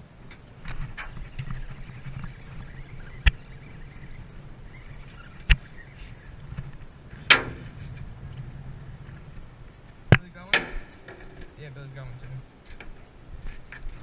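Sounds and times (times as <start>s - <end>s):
boat engine humming: 0.0s - 14.0s
sharp knocks: 7.2s - 7.8s.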